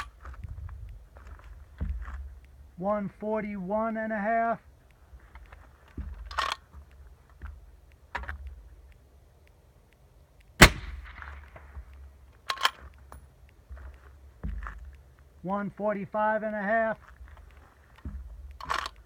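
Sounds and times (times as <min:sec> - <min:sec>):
rifle bolt metallic clicks: 0:00.0 - 0:02.7, 0:04.7 - 0:15.1, 0:17.0 - 0:19.0
handling clicks: 0:00.0 - 0:02.8, 0:03.4 - 0:15.4, 0:16.8 - 0:19.0
suppressed rifle shot: 0:10.6 - 0:12.8.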